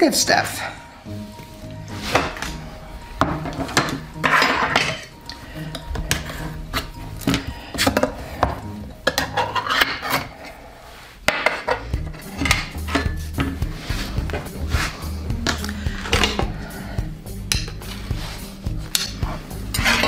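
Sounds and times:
metal utensil scraping in tin can: 0:09.1 - 0:10.5, 0:18.9 - 0:20.0.

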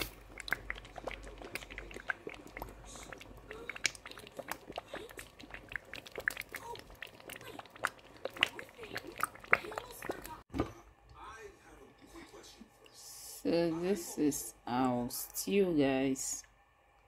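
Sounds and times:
stew bubbling in a pot: 0:00.0 - 0:10.7.

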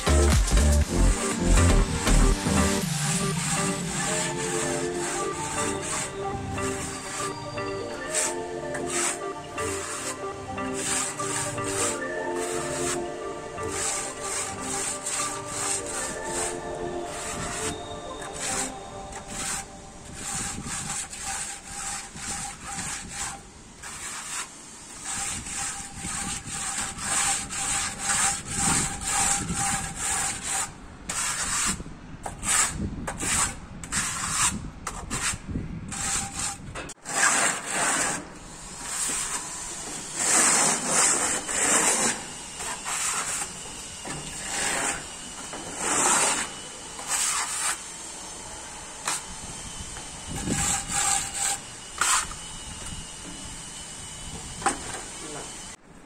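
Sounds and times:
trowel scraping plaster on wall: 0:00.1 - 0:47.8, 0:50.3 - 0:52.4.

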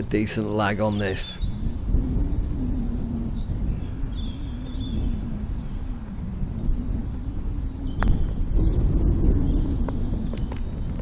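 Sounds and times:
small birds chirping: 0:00.0 - 0:11.0
wind buffeting microphone: 0:00.0 - 0:11.0.

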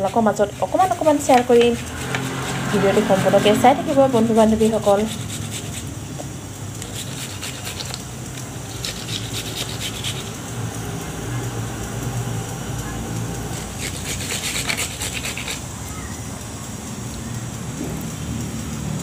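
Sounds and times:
leaf rasping on metal grater: 0:00.0 - 0:06.0, 0:06.8 - 0:10.4, 0:13.5 - 0:15.7.

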